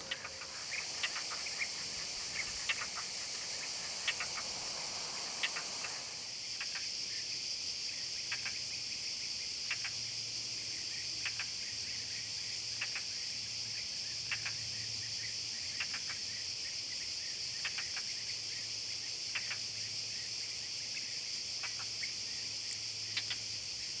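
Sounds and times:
faint low hum: 0.0 - 6.3
insects chirring: 0.0 - 24.0.

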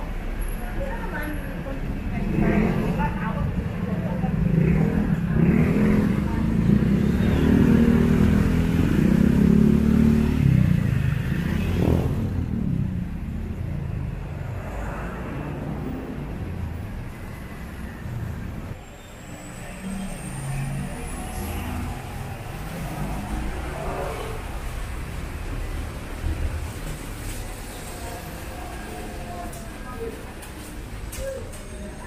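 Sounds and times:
traffic rumble: 0.0 - 32.0.

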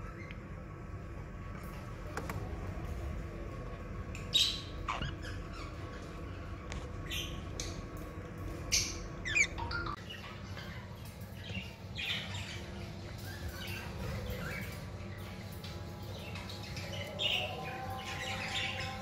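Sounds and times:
low hum: 0.0 - 19.0
budgerigars squawking and chirping: 4.3 - 6.4, 8.7 - 15.2.

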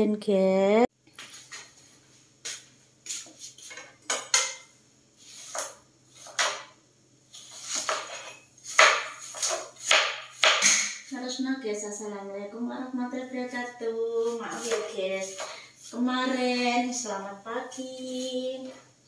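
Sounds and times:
knife chopping on plastic board: 7.7 - 11.0.

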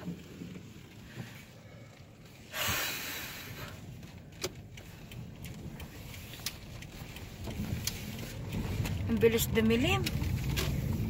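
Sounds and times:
car cabin hum: 0.0 - 11.0
faint clicks: 3.6 - 11.0.

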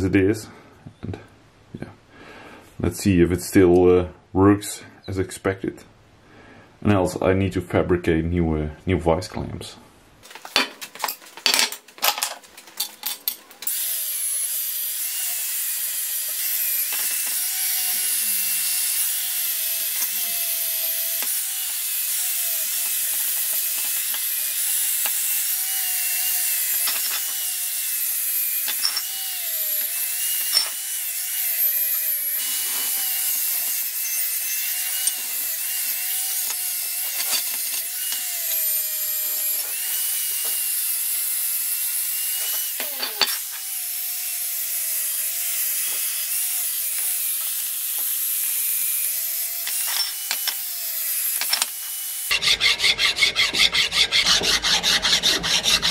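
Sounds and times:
angle grinder wire brush scrubbing: 14.4 - 40.9, 42.2 - 43.8, 51.2 - 55.9.

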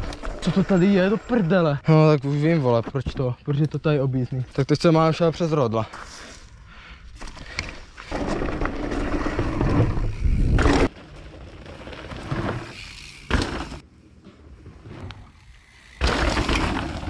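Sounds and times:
bike tyres rolling on dirt: 7.1 - 17.0
bike rattling: 7.2 - 17.0.

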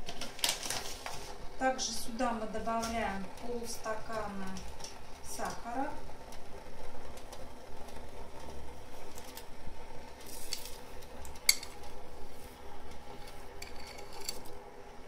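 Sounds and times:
sugar pouring into water: 6.9 - 14.6.

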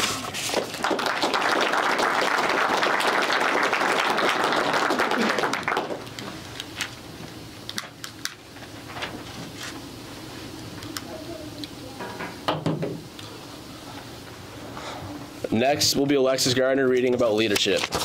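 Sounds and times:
audience applauding: 0.5 - 6.2.

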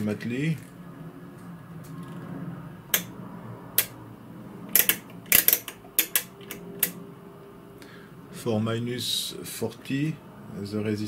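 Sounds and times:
low steady hum: 0.0 - 11.0
sharp clicks and knocks: 2.9 - 3.2, 3.8 - 4.0, 4.7 - 7.0.

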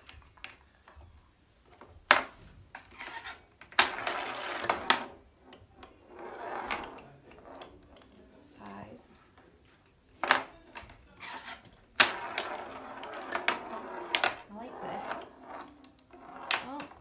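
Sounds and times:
ball rattling across wooden board: 1.7 - 8.1, 10.2 - 17.0.

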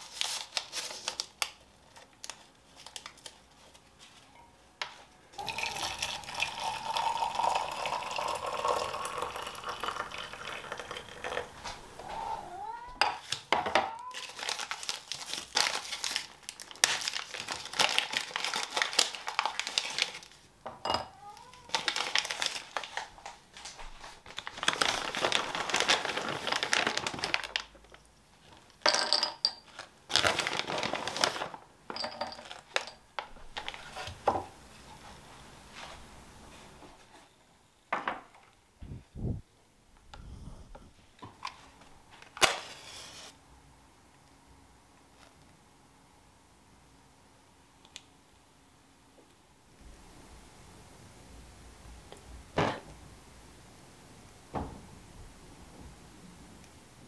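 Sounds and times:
wrapper crinkling and tearing: 0.0 - 3.9, 14.0 - 20.4, 21.3 - 28.8, 29.7 - 31.7, 42.2 - 43.3
hot water pouring into a cup: 5.4 - 11.6.

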